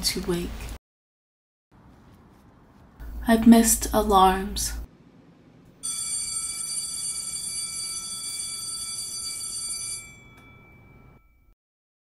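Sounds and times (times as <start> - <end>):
alarm bell ringing: 5.8 - 11.6.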